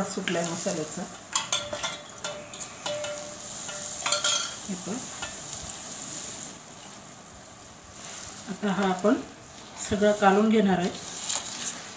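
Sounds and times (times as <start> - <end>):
hot oil sizzling: 0.0 - 11.9
ladle clinking on steel plate: 1.3 - 4.6.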